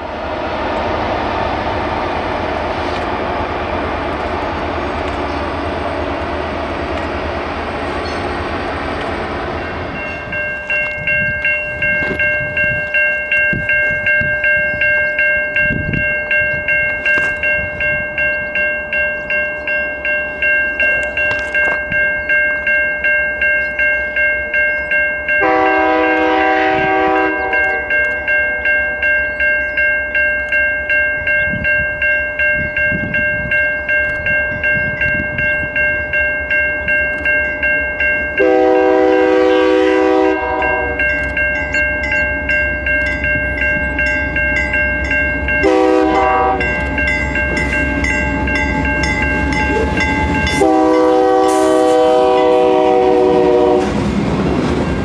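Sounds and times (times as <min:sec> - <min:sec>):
railroad crossing bell ringing: 0:00.0 - 0:53.9
passing train rushing: 0:00.0 - 0:55.0
distant train horn blast: 0:25.4 - 0:28.0, 0:38.4 - 0:41.1, 0:45.6 - 0:46.8, 0:49.7 - 0:54.0.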